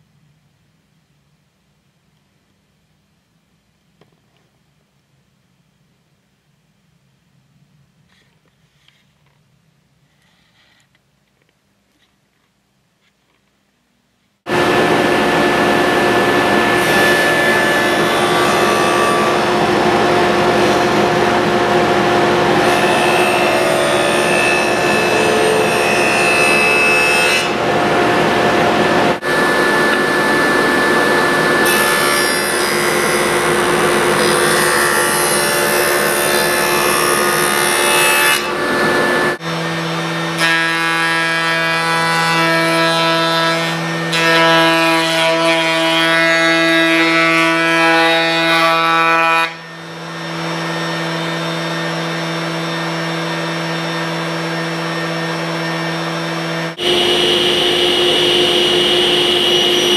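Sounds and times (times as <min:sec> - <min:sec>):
power saw cutting wood: 0:14.5 - 0:59.9
steady pitched hum: 0:27.4 - 0:37.4, 0:55.3 - 0:59.9.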